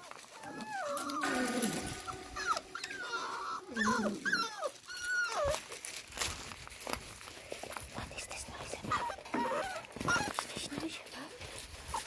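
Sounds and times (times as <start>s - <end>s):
puppies whining and yelping: 0.0s - 6.0s, 8.8s - 10.5s, 11.8s - 12.0s.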